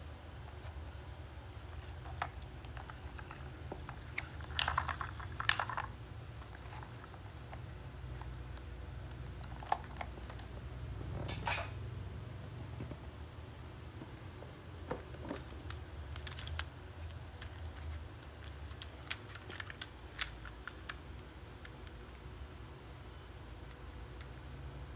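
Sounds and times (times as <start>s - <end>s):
low steady hum: 0.0s - 24.9s
plastic toy clattering: 2.0s - 7.0s
plastic toy clicks and knocks: 4.4s - 5.9s.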